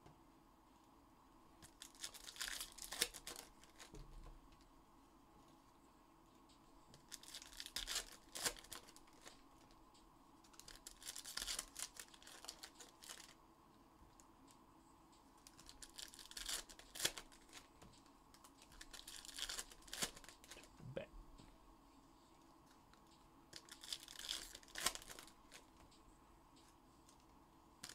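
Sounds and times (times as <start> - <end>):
foil wrappers torn and crinkled: 1.6 - 4.0, 7.0 - 9.7, 10.5 - 13.4, 15.4 - 17.7, 18.3 - 20.7, 23.5 - 25.8.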